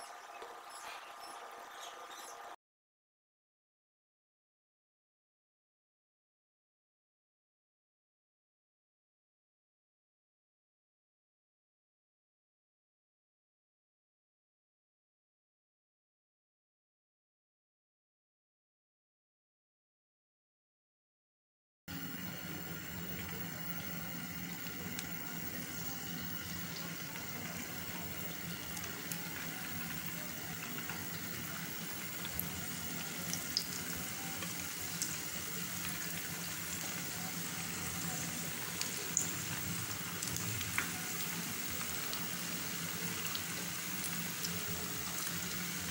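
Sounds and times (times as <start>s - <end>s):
food sizzling in hot oil: 21.9s - 45.9s.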